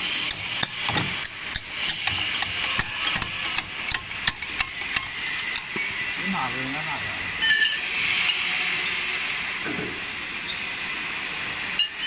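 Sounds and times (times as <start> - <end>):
wrenches clicking on bolts: 0.2 - 5.7.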